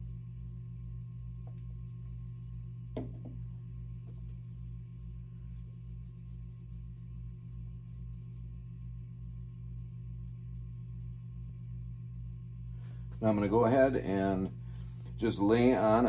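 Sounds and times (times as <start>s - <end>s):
lab equipment humming: 0.0s - 16.0s
syringe knocking on bench: 2.9s - 3.4s.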